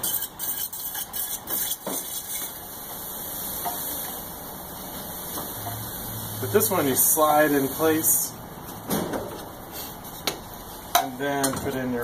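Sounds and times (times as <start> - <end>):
steady hiss: 1.8 - 8.8.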